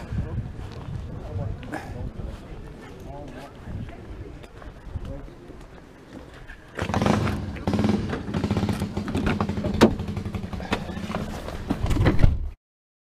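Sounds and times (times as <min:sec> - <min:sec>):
engine running: 0:06.8 - 0:11.6.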